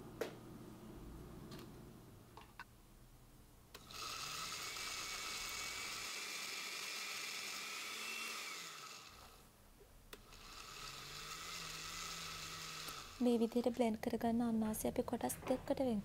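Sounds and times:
blender motor whining: 3.8s - 9.4s, 10.2s - 13.7s.

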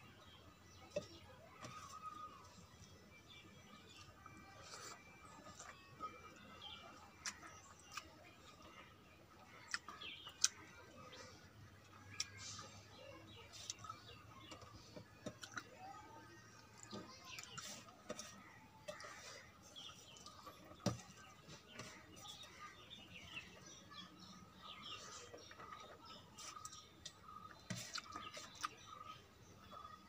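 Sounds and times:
small birds chirping: 0.0s - 30.0s
fingers scooping rice: 3.9s - 8.1s.

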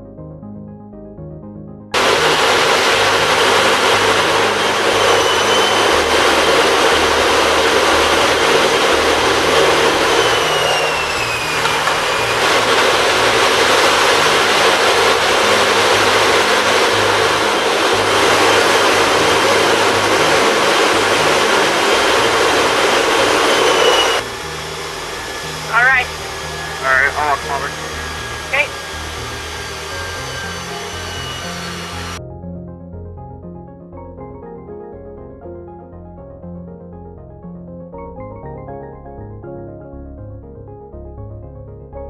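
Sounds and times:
faint high whine: 2.0s - 32.2s
jet engine roar: 2.0s - 32.2s.

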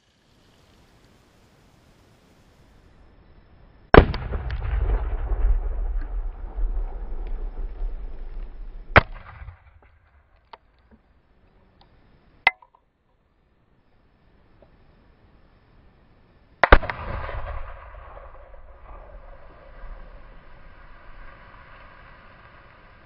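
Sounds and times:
explosive target blasts: 3.9s - 10.3s, 16.6s - 20.3s
deep explosion rumble: 3.9s - 10.4s, 16.8s - 21.3s.

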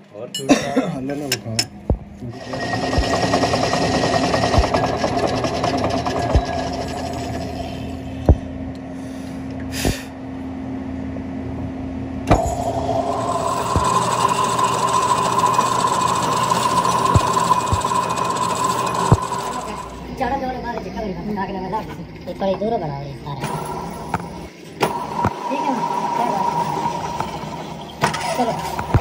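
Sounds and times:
metal lathe running: 2.3s - 8.3s, 12.3s - 20.2s, 23.4s - 29.0s
file rasping on spinning metal: 2.4s - 8.0s, 12.3s - 20.1s.

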